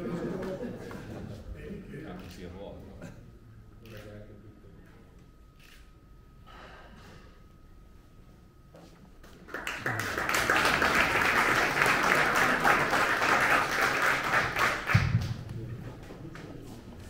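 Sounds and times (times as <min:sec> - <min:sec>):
audience applauding: 0:09.5 - 0:15.4.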